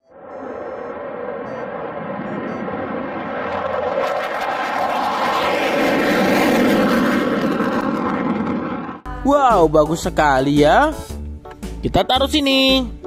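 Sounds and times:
fighter jet roar on takeoff: 0.0s - 9.1s.

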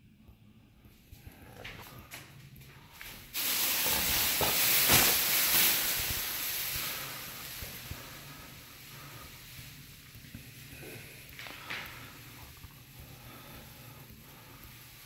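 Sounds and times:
plastic sheeting rustling: 3.0s - 15.0s.

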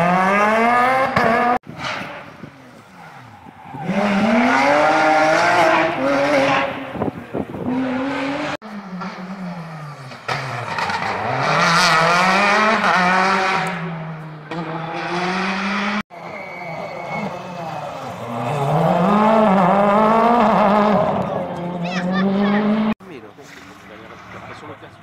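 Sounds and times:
rally car engine revving hard: 0.0s - 1.6s, 3.8s - 16.0s, 16.8s - 23.0s.

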